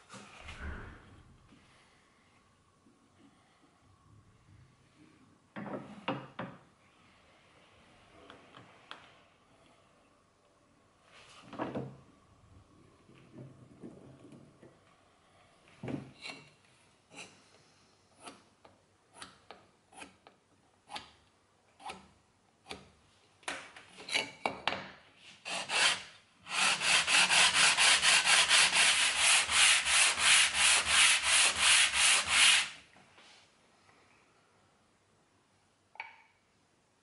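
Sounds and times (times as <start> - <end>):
wood rubbed on sandpaper: 25.4 - 32.8.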